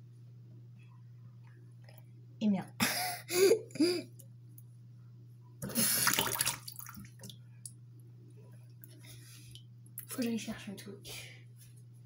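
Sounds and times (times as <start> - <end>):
hand splashing water in sink: 5.8 - 7.4.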